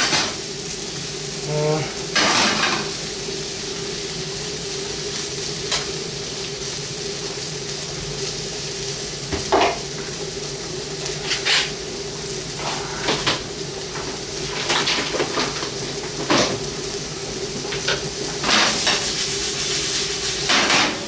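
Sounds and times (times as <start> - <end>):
liver sizzling in a frying pan: 0.0 - 21.0
pans and utensils clinking: 2.2 - 2.9, 11.2 - 11.8, 12.6 - 13.4, 14.0 - 16.6, 17.7 - 19.2, 20.4 - 21.0.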